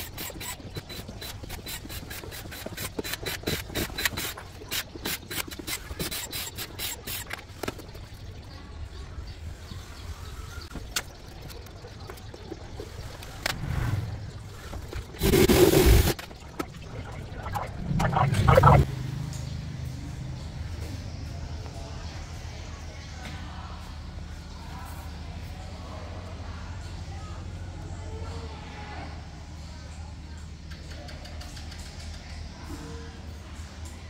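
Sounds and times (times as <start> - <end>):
quick scraping strokes: 13.2 - 16.2
loud burst of noise: 15.2 - 16.2.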